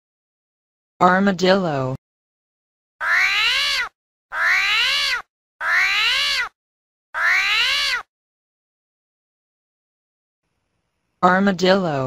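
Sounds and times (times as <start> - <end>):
whining animal call: 3.0 - 6.6, 7.2 - 8.1.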